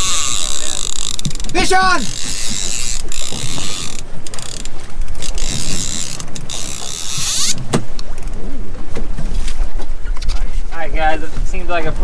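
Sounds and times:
fishing reel drag buzzing: 0.0s - 7.6s.

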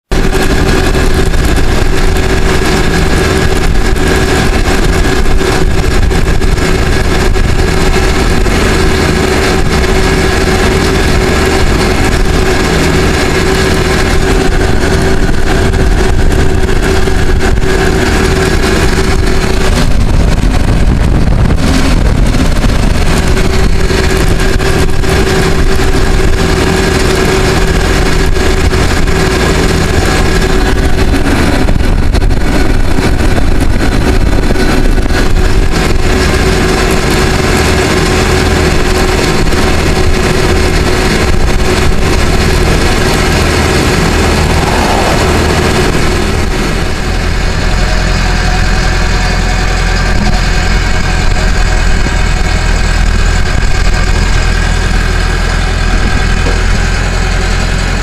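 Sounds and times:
diesel engine running: 0.0s - 58.0s
steady whine: 0.0s - 58.0s.

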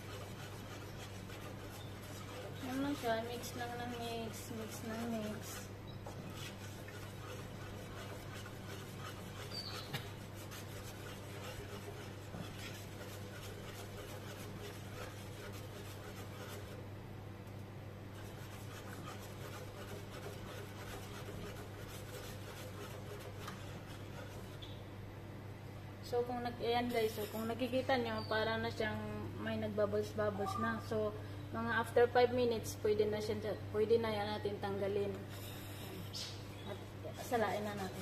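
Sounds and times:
spoon scraping a pot: 0.0s - 16.8s, 18.2s - 24.8s
steady low hum: 0.0s - 38.0s.

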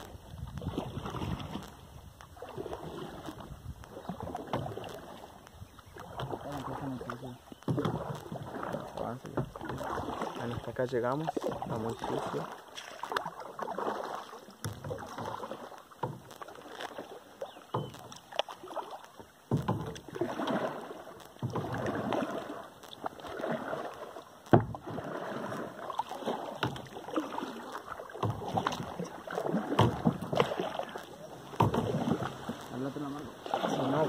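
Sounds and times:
paddle splashing through water: 0.0s - 34.0s.

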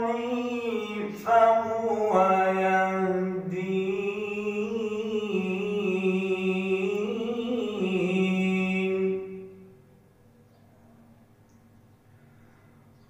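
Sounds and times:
man reciting melodically: 0.0s - 9.7s.

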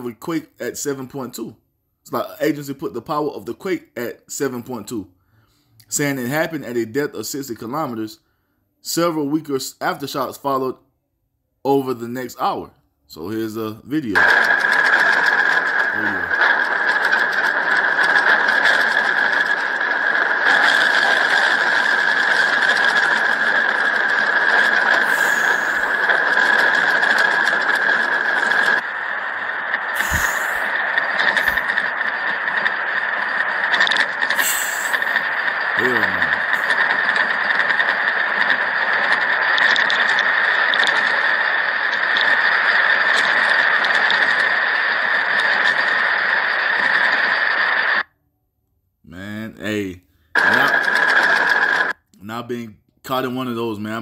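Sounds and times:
objects rattling in earthquake: 14.2s - 47.7s, 50.4s - 51.9s
faint clicks and ticks: 30.0s - 46.1s.

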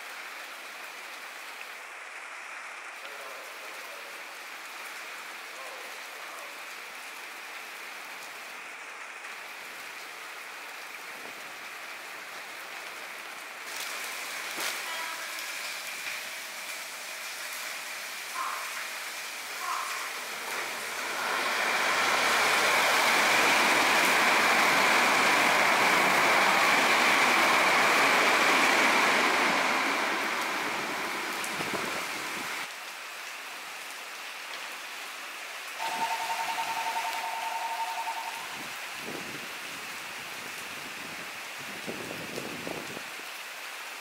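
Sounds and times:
heavy rain hissing: 0.0s - 44.0s
electric train passing: 19.0s - 32.7s, 35.8s - 38.9s
two-note tone: 35.8s - 38.6s.

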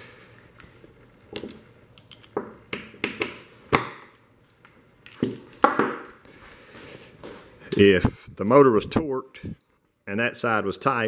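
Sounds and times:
tools clicking and knocking on workbench: 0.6s - 4.3s.

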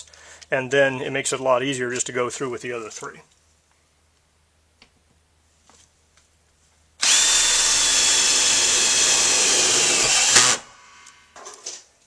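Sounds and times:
cordless drill whining: 7.0s - 11.2s.

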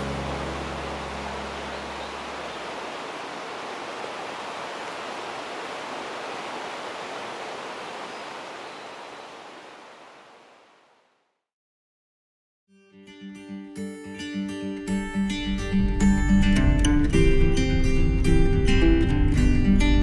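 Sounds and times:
river water rushing: 0.0s - 11.0s.

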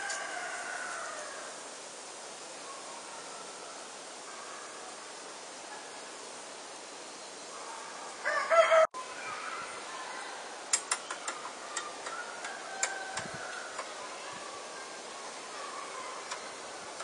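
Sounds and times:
steady outdoor hiss: 0.0s - 17.0s
sharp clicks: 10.7s - 13.9s.

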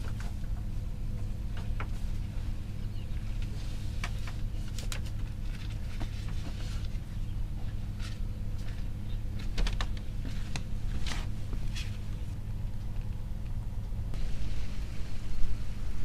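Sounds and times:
low hum: 0.0s - 16.0s
bamboo bed creaking: 3.2s - 12.4s.

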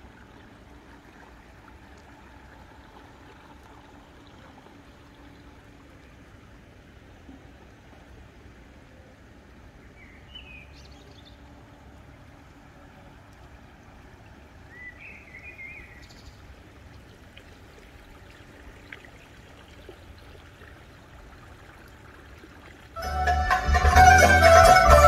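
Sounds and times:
bird chirp: 10.0s - 11.5s, 14.7s - 16.5s
loud music: 23.0s - 25.0s.

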